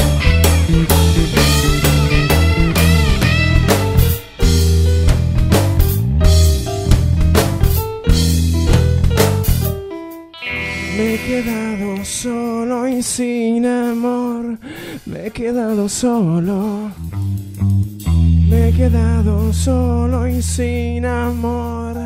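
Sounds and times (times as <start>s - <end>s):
held guitar chord: 0.0s - 4.6s, 10.3s - 13.8s
live band playing: 0.0s - 13.4s
man singing with vibrato: 10.4s - 17.0s, 18.4s - 22.0s.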